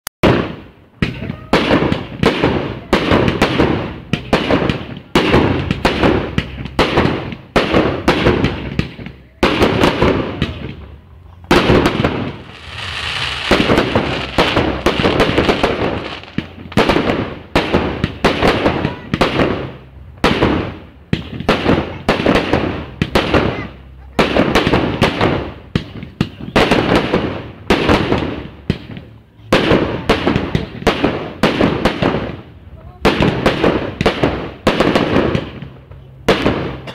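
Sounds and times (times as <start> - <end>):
fireworks hissing: 11.5 - 19.1
firework shell bursts: 11.6 - 17.8.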